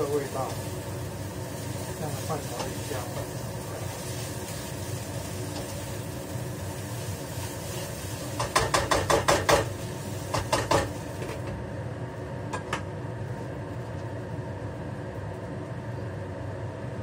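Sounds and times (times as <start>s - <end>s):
steady hiss: 0.0s - 11.4s.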